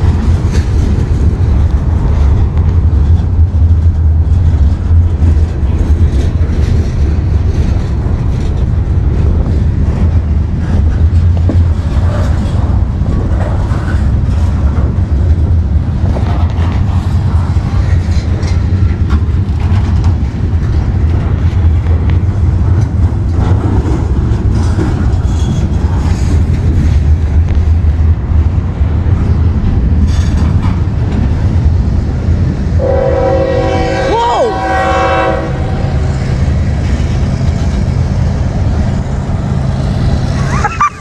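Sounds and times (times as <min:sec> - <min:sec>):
wheels clicking over rail joints: 0:00.0 - 0:32.8
train wheels rumbling on rail: 0:00.0 - 0:41.0.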